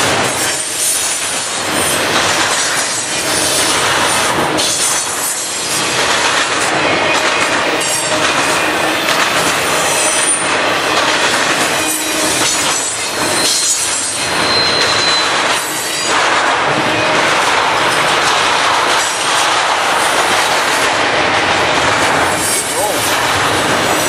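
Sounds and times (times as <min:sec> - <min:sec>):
freight train wheels rumbling: 0:00.0 - 0:24.0
high wheel squeals: 0:11.7 - 0:16.1.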